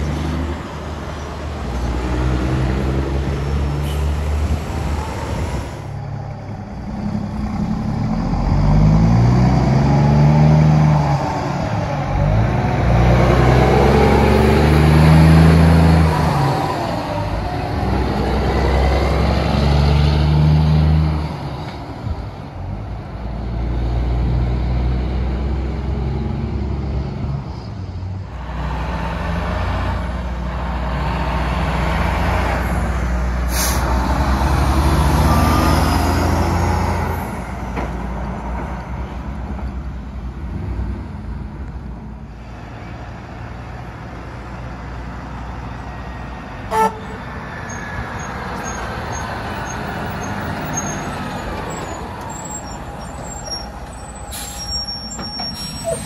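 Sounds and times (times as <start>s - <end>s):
truck engines rumbling: 0.0s - 56.0s
short horn toot: 46.7s - 47.2s.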